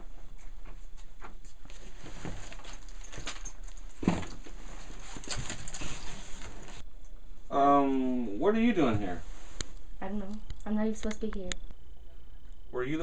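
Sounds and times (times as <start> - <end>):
footsteps and shuffling: 0.0 - 6.8.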